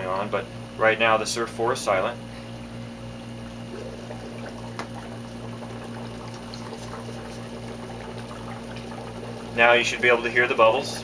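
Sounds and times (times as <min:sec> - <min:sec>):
low pump hum: 0:00.0 - 0:11.0
air bubbling through water: 0:03.2 - 0:10.6.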